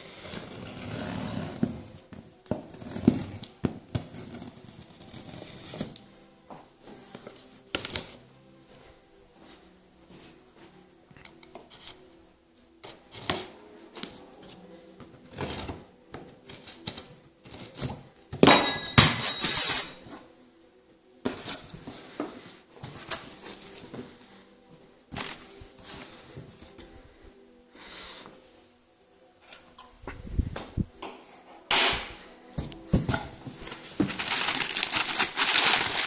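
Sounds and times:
tape ripping: 0:33.6 - 0:36.0.

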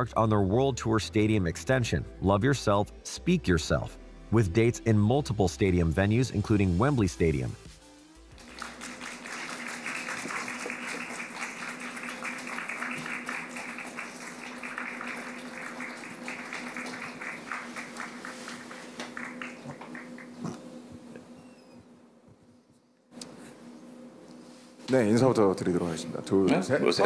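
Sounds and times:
small crowd clapping: 0:08.3 - 0:20.7
steady low hum: 0:08.4 - 0:27.0.

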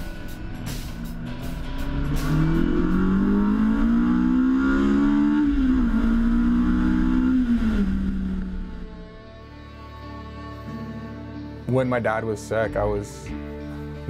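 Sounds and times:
car engine accelerating: 0:00.0 - 0:10.6.

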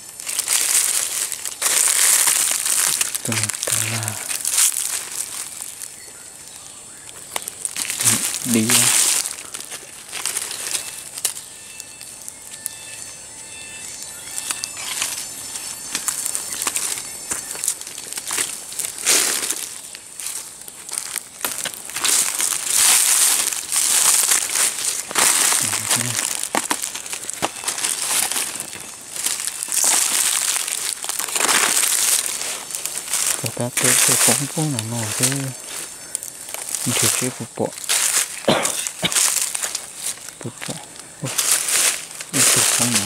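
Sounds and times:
dry leaves and twigs crackling: 0:00.0 - 0:43.0
forest background hiss: 0:00.0 - 0:43.0
faint bird chirps: 0:05.3 - 0:18.4, 0:24.8 - 0:26.3, 0:33.4 - 0:39.0.

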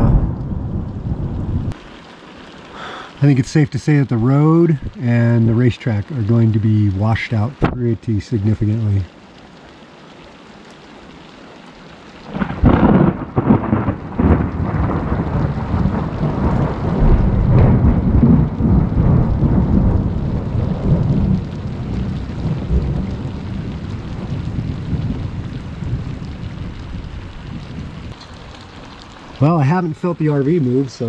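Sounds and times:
thunderclap with sharp cracks: 0:00.0 - 0:02.0, 0:12.3 - 0:28.2
steady rain: 0:00.0 - 0:31.0.

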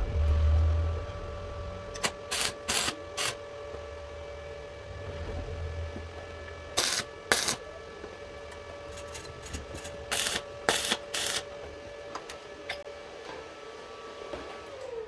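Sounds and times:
arc welder crackling: 0:00.0 - 0:04.0, 0:06.0 - 0:07.7, 0:08.3 - 0:12.4.

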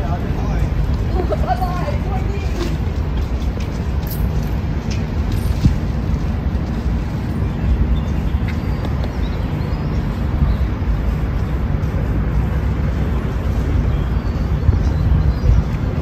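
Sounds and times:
low city rumble: 0:00.0 - 0:16.0.

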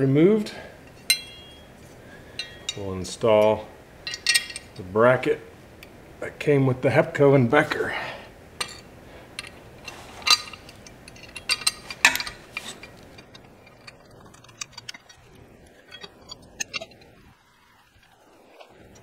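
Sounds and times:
metal bracket and bolts clinking: 0:00.8 - 0:04.9, 0:08.6 - 0:17.4.

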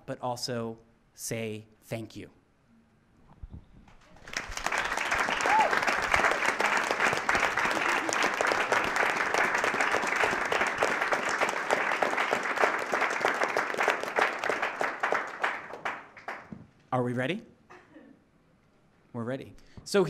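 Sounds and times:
audience applauding: 0:04.0 - 0:16.6.

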